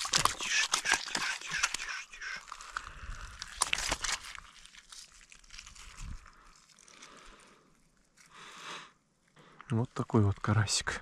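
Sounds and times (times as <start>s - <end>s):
rustling and small clicks: 0.0s - 8.3s.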